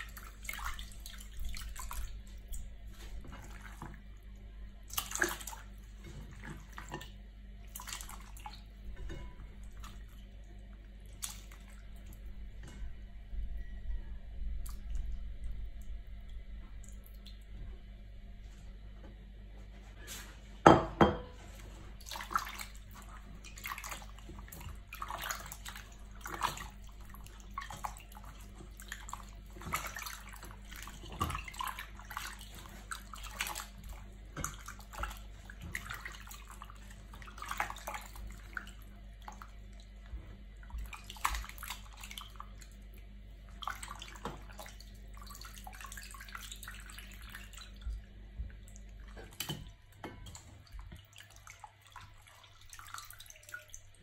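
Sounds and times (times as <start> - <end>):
faint low hum: 0.0 - 54.0
water sloshing and splashing: 0.0 - 54.0.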